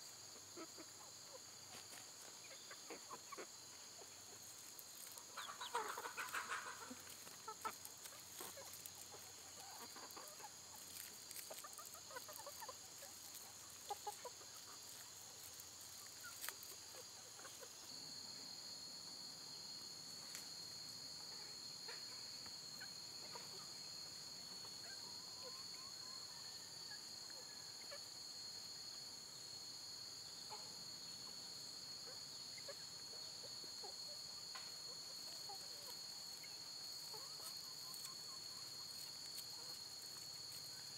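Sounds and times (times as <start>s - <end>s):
chickens clucking: 0.3s - 18.0s, 32.5s - 40.6s.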